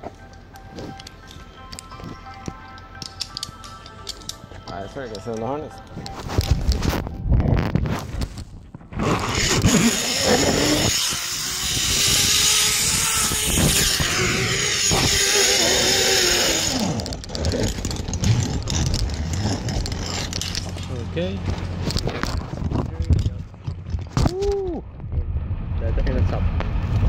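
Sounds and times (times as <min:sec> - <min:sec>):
wind on microphone: 0:06.2 - 0:17.3
zip line pulleys whirring on cable: 0:09.0 - 0:20.9.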